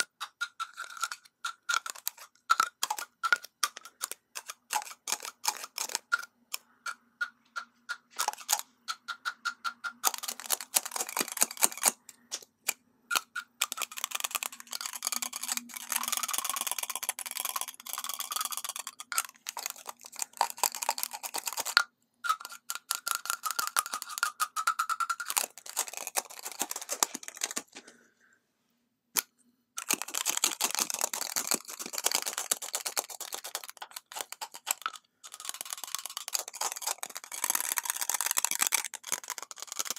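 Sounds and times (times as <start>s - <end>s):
fingernails tapping on lipstick tubes: 0.0s - 27.9s.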